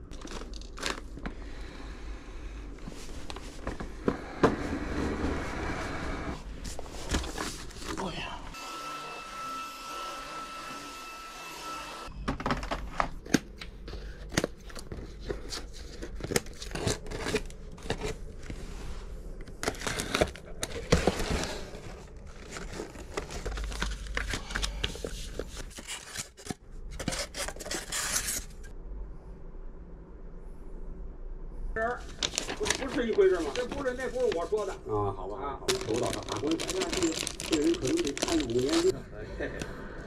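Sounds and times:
packaging crinkling and tearing: 0.0 - 1.3, 14.2 - 18.6, 19.5 - 28.5, 32.0 - 34.6, 35.7 - 38.9
background noise with faint tone: 12.1 - 40.0.

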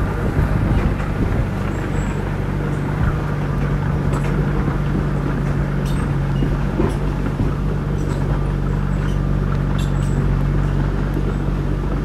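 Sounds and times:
bulldozer diesel engine running: 0.0 - 12.0.

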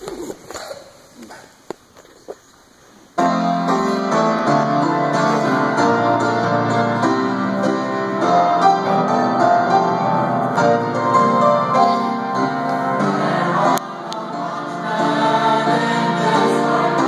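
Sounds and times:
piano playing chords: 3.2 - 17.0.

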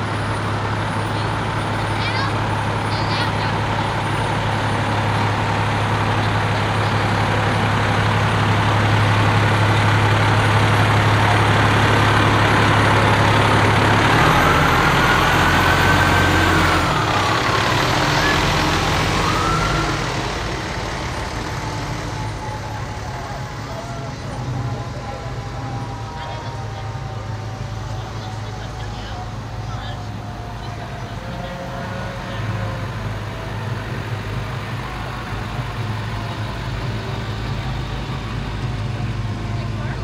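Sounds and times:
fire truck diesel engine: 0.0 - 40.0
siren wail: 6.4 - 38.4.

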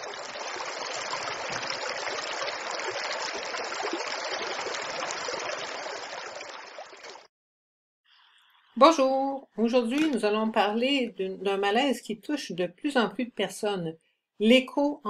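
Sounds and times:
flowing water rushing: 0.0 - 7.3.

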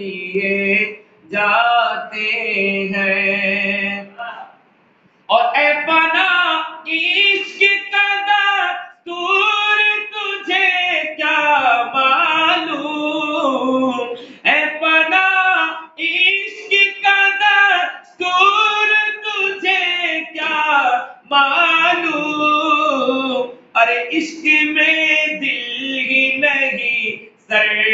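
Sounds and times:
man singing unaccompanied: 0.0 - 4.6, 5.3 - 27.9
man breathing: 14.2 - 14.5.

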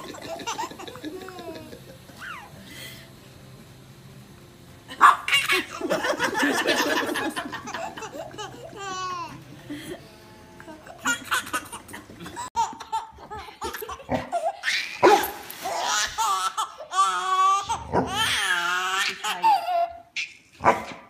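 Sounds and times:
baby laughing: 0.0 - 2.5, 5.0 - 9.5, 10.8 - 20.4.

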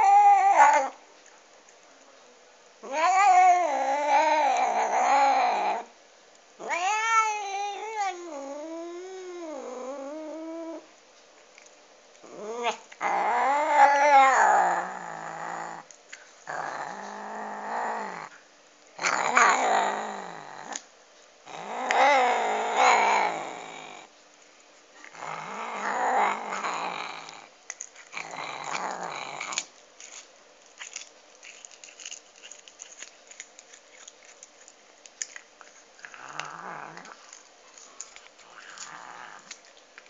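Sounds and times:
cat growling and yowling: 0.0 - 1.0, 2.8 - 5.9, 6.6 - 10.9, 12.2 - 15.9, 16.5 - 18.4, 19.0 - 20.8, 21.5 - 24.1, 25.0 - 27.5, 28.1 - 29.7, 36.0 - 39.6.

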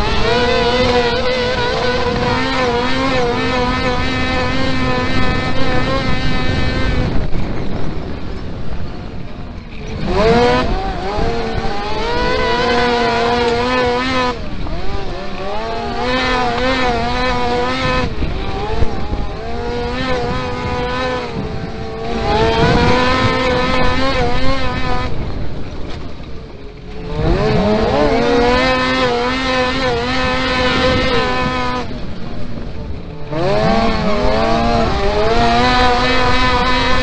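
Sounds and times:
motorcycle engine revving: 0.0 - 37.0.

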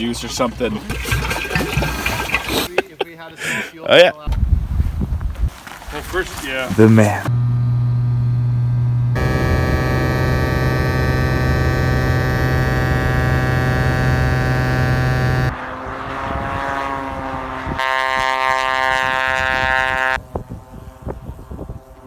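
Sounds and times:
propeller plane engine droning: 7.3 - 15.5.

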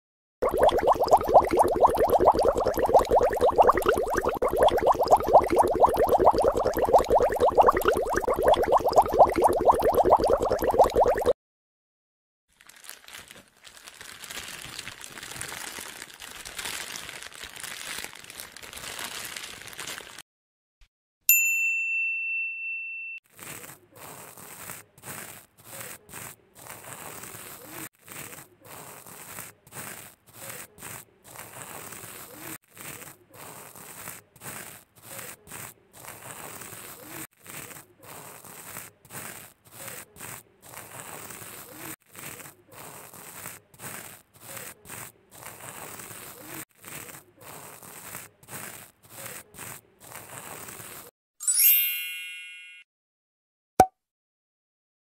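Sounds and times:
card spreader scraping puzzle: 23.3 - 51.0.

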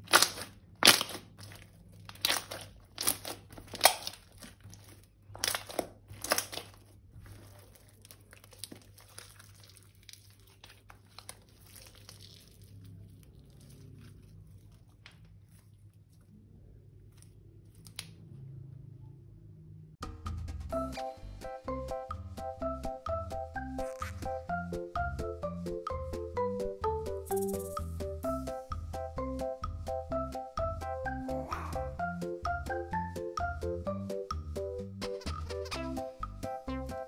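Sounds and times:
thin plastic crinkling: 0.0 - 16.4.

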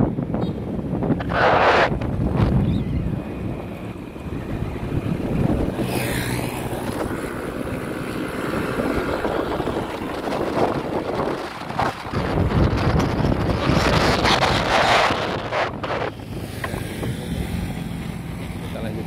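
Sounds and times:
motorbike engine hum: 0.0 - 19.0
wind buffeting microphone: 0.0 - 19.0.

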